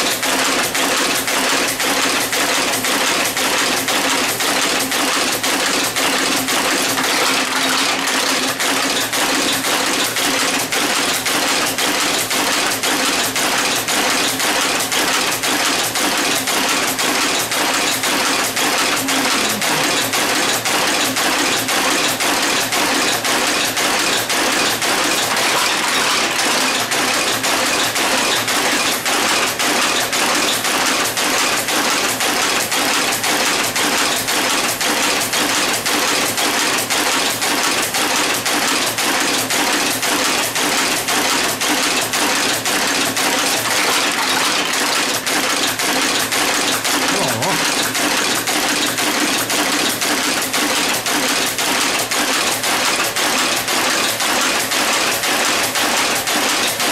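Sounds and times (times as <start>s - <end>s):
type-casting machine clatter: 0.0s - 56.9s.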